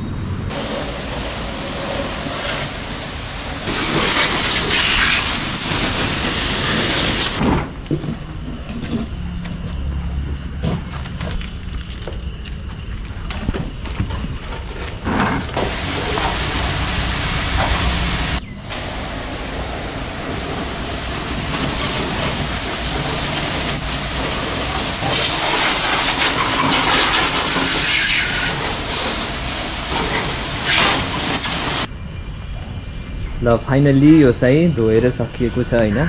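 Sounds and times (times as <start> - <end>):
high-pressure water jet hissing: 0.5 - 7.4, 15.6 - 31.9.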